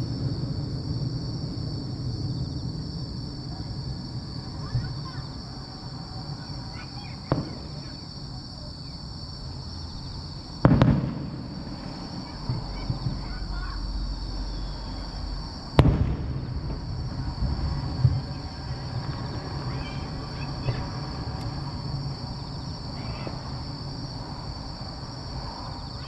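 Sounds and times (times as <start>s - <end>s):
firework shells bursting: 7.2s - 8.1s, 10.0s - 15.1s, 15.7s - 24.3s.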